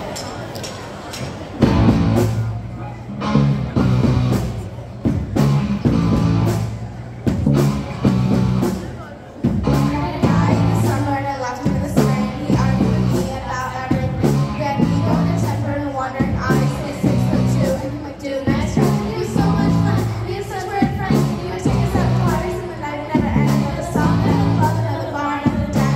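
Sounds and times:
live rock band playing: 0:01.6 - 0:24.8
girls singing: 0:09.8 - 0:25.9.

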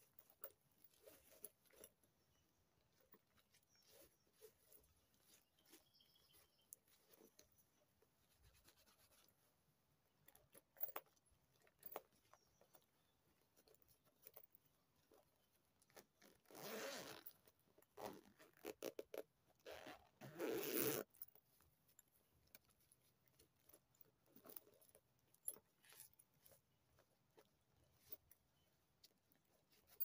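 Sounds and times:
handbag zipper pulled: 0:15.9 - 0:21.2.

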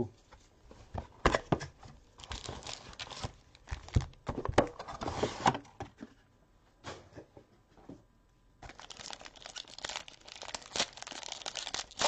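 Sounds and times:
packaging tearing and crinkling: 0:02.2 - 0:05.1, 0:08.6 - 0:12.0.

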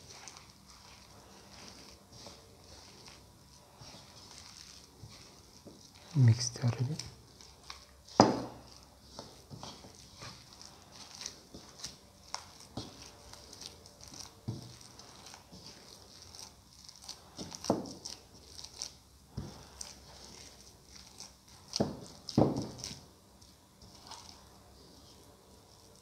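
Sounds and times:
hands squelching dough: 0:00.0 - 0:26.0.

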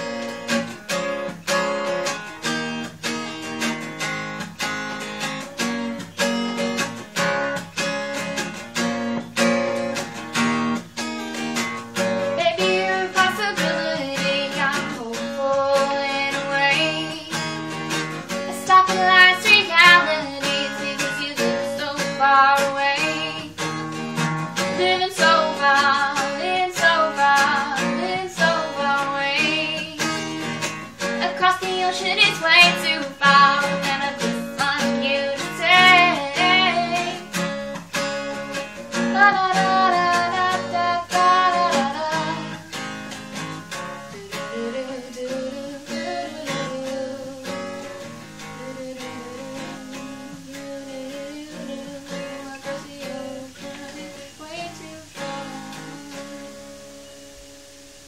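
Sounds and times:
strummed acoustic guitar: 0:00.0 - 0:58.0
woman singing: 0:12.0 - 0:57.3.

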